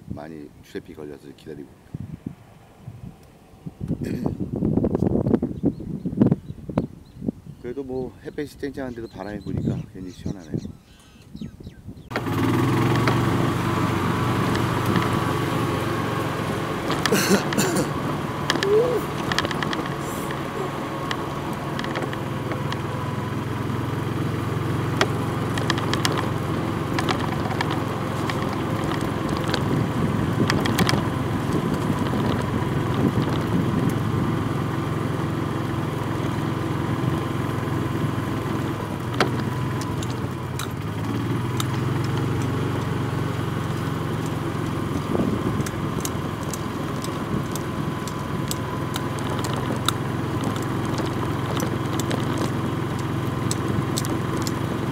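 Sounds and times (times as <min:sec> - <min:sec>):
golf cart humming: 0:12.0 - 0:54.9
rattles and knocks: 0:16.9 - 0:22.9, 0:25.0 - 0:29.8, 0:44.2 - 0:53.0.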